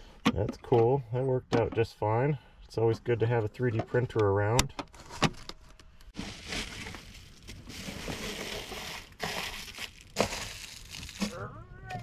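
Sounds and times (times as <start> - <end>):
foil insulation crinkling: 6.2 - 11.5.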